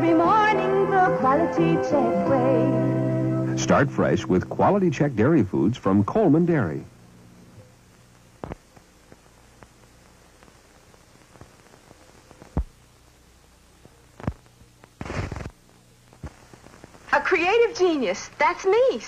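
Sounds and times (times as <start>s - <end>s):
low hum and hiss: 0.0s - 19.0s
crackling burst: 7.8s - 17.6s
sharp clicks and pops: 8.4s - 9.8s, 11.2s - 12.8s, 13.8s - 17.1s.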